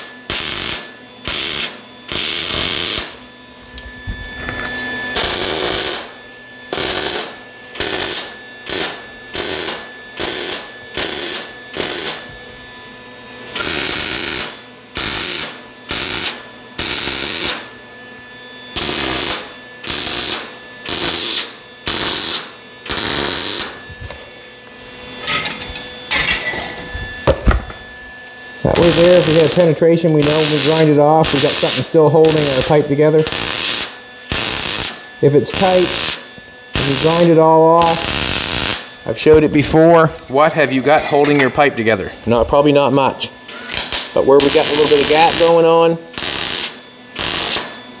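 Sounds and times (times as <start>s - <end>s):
welding arc crackle bursts: 0.0s - 3.2s, 5.1s - 12.3s, 13.6s - 17.7s, 18.7s - 23.8s, 28.6s - 38.9s, 43.5s - 47.7s.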